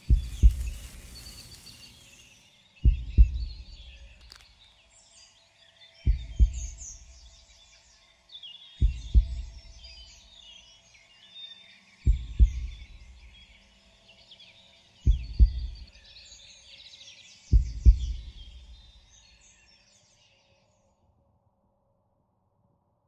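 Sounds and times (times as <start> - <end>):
deep heartbeat-like double thud: 0.0 - 0.8, 2.8 - 3.9, 6.1 - 6.9, 8.8 - 9.8, 12.1 - 12.9, 15.1 - 15.9, 17.6 - 18.5
birds chirping: 0.0 - 20.7.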